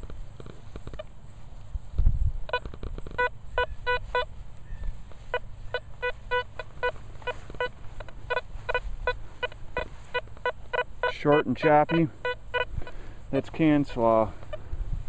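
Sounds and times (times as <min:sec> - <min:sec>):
metal detector short beeps: 0:02.5 - 0:13.0.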